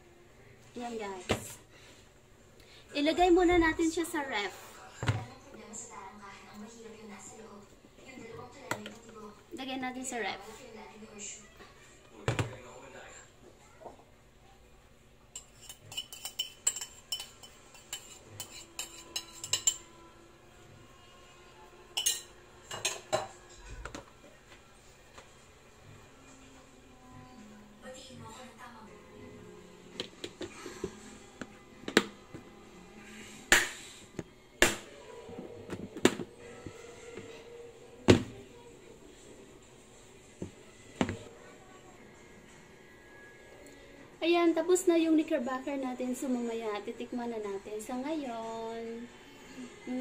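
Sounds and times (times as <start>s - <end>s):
spoon scraping a bowl: 15.4s - 20.0s.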